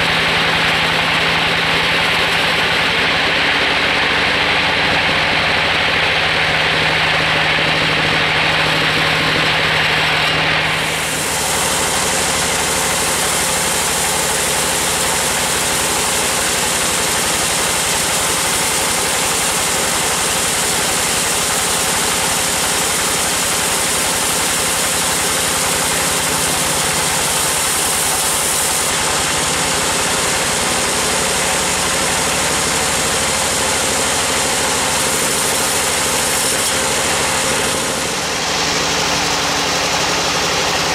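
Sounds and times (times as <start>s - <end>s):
band saw cutting timber: 0.0s - 40.9s
drive machinery running: 0.0s - 40.9s.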